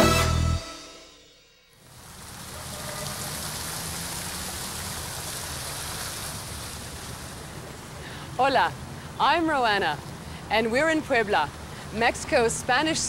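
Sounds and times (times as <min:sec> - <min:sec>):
fountain water splashing: 0:01.8 - 0:13.0.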